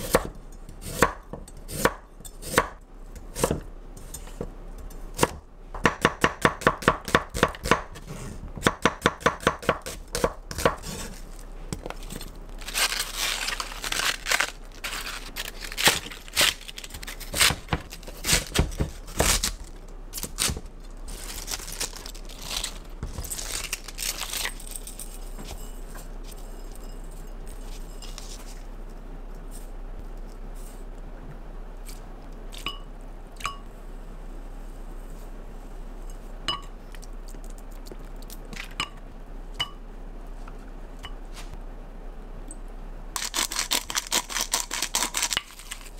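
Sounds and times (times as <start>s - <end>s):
knife chopping on cutting board: 3.4s - 3.7s.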